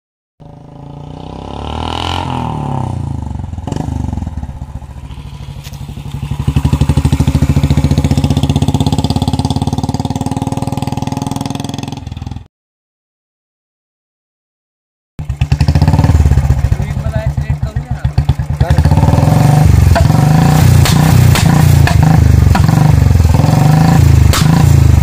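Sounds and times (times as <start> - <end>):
motorcycle engine thumping: 3.5 - 12.4, 15.2 - 25.0.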